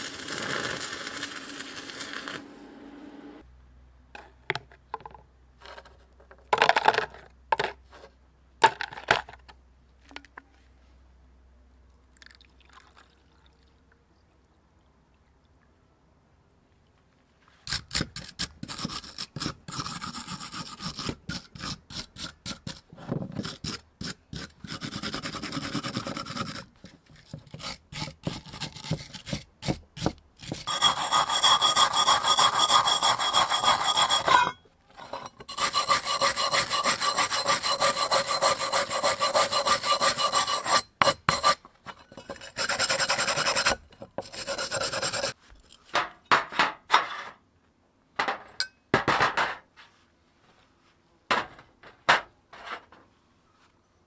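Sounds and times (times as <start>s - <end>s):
wire brush scrubbing metal: 30.4s - 45.4s.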